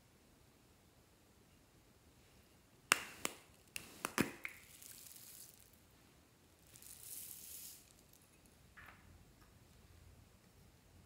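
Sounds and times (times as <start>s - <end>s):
foam beads rustling: 3.5s - 5.9s, 6.6s - 8.6s.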